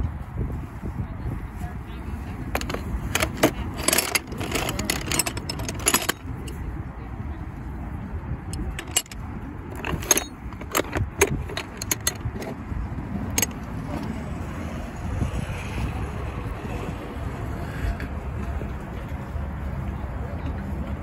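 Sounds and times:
small metal objects clinking: 0:02.5 - 0:06.5, 0:08.5 - 0:12.5.

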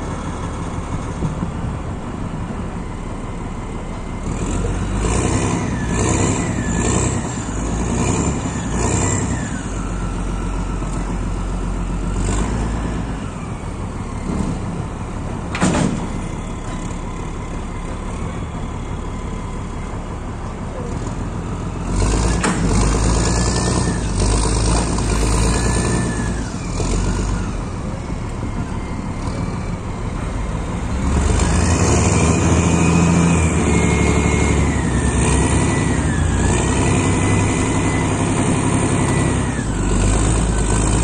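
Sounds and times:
heavy diesel engine running: 0:00.0 - 0:41.0
rising and falling whines: 0:23.0 - 0:41.0.

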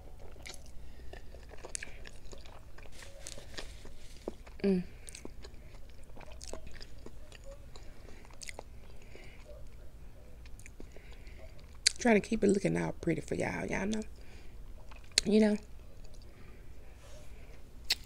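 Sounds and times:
person chewing food: 0:00.0 - 0:12.0, 0:13.9 - 0:18.0
person humming: 0:04.6 - 0:05.0.

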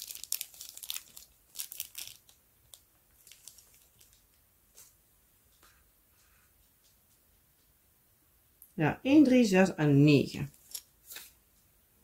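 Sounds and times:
plastic wrapping crinkling: 0:00.0 - 0:04.4.

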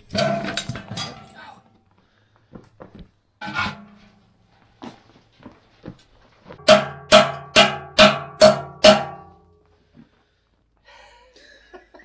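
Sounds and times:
hammer blows on metal: 0:06.6 - 0:09.4.

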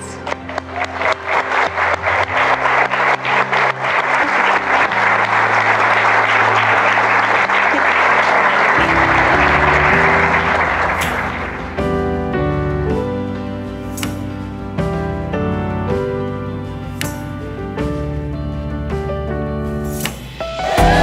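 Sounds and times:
guests applauding: 0:00.0 - 0:11.8
music with low sustained notes: 0:00.0 - 0:21.0.

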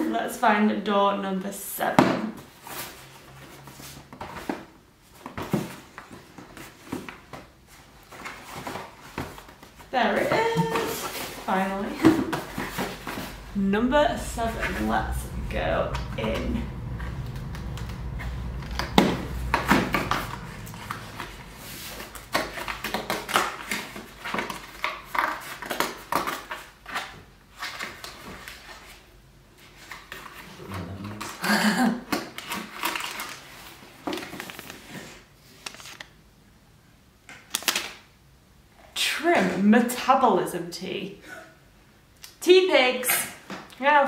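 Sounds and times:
cardboard and paper crinkling: 0:32.2 - 0:36.1.

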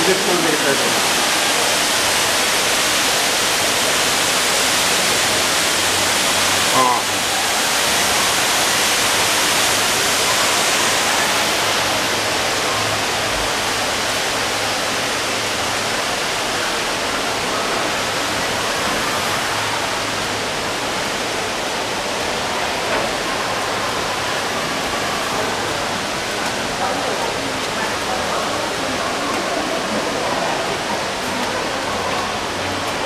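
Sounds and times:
waterfall rushing: 0:00.0 - 0:33.0.

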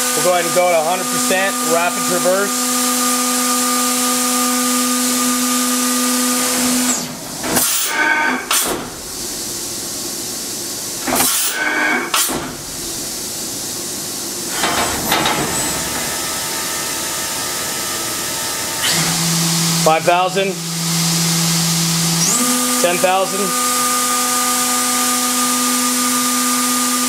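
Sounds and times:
servo whine and rushing noise: 0:00.8 - 0:27.0
spindle whine: 0:12.7 - 0:26.4.

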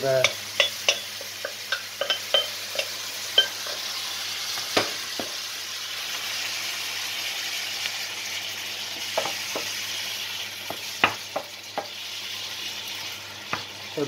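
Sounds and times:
spinach sizzling in a pan: 0:00.0 - 0:14.0
wooden spoon knocking on pan: 0:00.2 - 0:03.8, 0:04.8 - 0:05.4, 0:09.1 - 0:09.8, 0:10.6 - 0:12.0.

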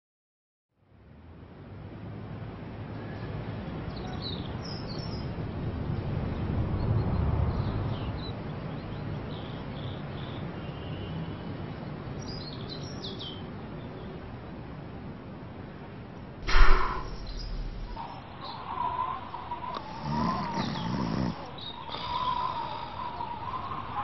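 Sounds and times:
birds chirping: 0:02.9 - 0:14.3, 0:16.5 - 0:24.0
low background noise: 0:08.3 - 0:24.0.

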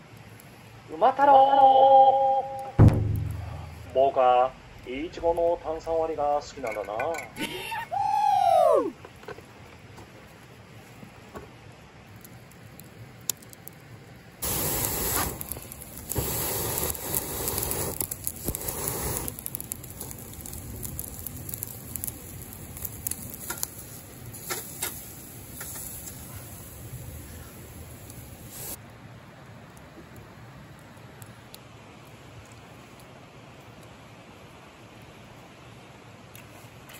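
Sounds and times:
coals crackling and popping: 0:00.0 - 0:36.9
steak sizzling on a grill: 0:14.4 - 0:28.8.

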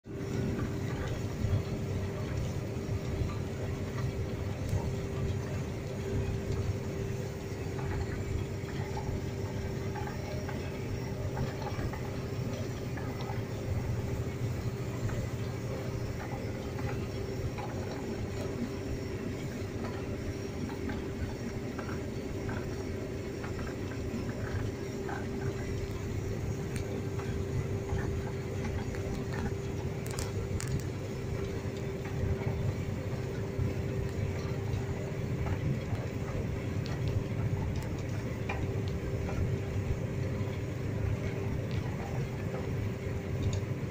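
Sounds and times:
combine harvester rumble: 0:00.0 - 0:43.9
constant machine whine: 0:00.0 - 0:43.9.

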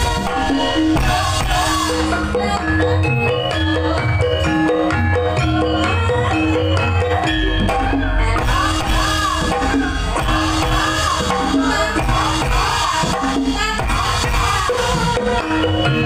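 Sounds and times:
deep low drum beat: 0:00.0 - 0:02.7, 0:07.6 - 0:14.7
gamelan metallophones ringing: 0:00.0 - 0:16.0
woman singing through microphone: 0:00.0 - 0:16.0.

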